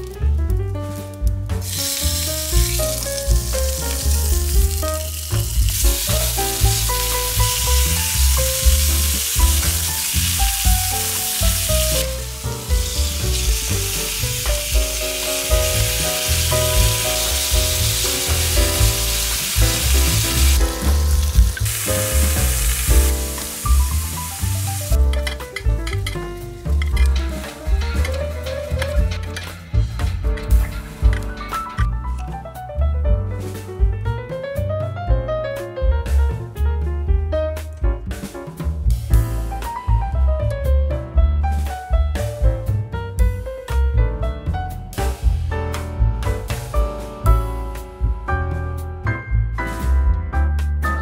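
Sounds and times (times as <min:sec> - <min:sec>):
background music with bass: 0:00.0 - 0:51.0
meat sizzling in a pan: 0:01.6 - 0:25.2.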